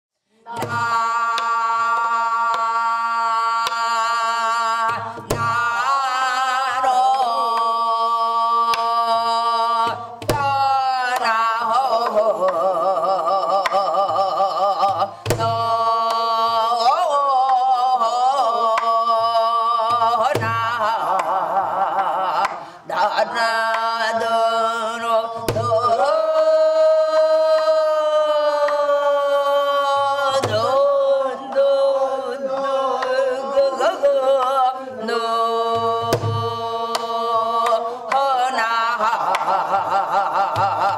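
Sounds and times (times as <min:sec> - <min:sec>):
wordless vocal singing: 0:00.3 - 0:40.9.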